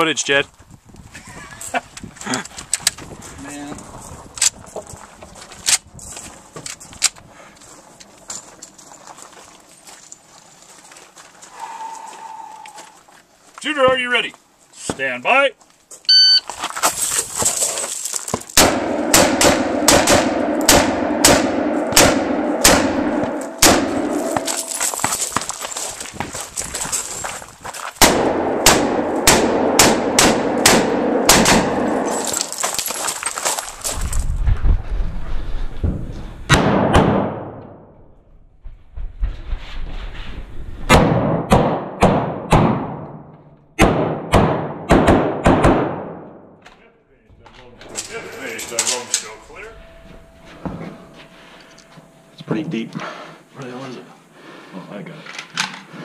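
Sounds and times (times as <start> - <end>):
rifle shots: 18.6 - 24.8, 28.0 - 32.6, 36.5 - 37.8, 40.9 - 46.4.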